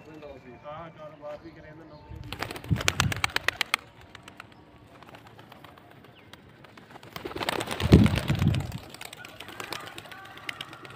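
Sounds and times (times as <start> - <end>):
low-pitched pigeon flurry: 2.2 - 10.9
pigeons: 2.2 - 10.9.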